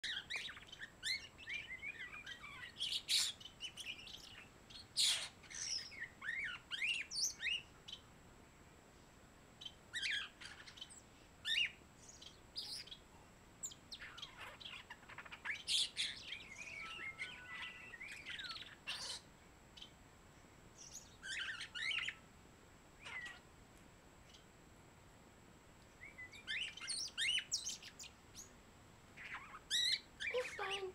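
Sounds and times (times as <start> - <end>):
starling singing: 0.0 - 8.0, 9.6 - 13.0, 13.6 - 20.0, 20.8 - 22.2, 23.0 - 23.5, 26.0 - 28.6, 29.2 - 30.9.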